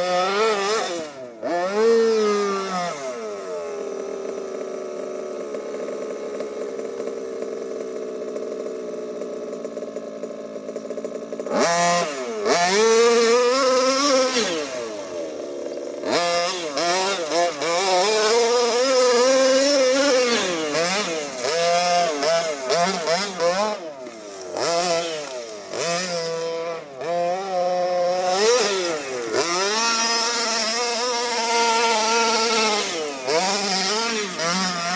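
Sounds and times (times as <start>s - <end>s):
two-stroke engine revving: 0.0s - 34.9s.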